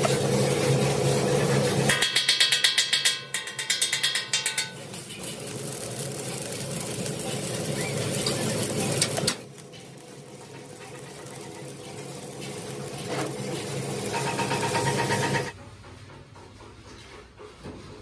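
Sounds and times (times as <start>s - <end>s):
welding arc crackling and hissing: 0.0s - 15.6s
chipping hammer tapping on steel: 1.9s - 4.8s.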